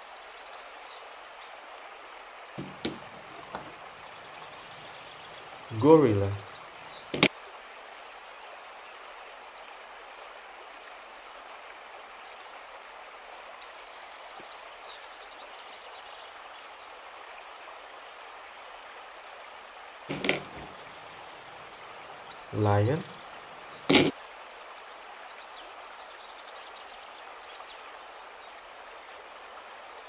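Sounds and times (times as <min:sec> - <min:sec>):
steady outdoor hiss: 0:00.0 - 0:30.0
faint bird chirps: 0:02.6 - 0:07.3, 0:20.1 - 0:24.8.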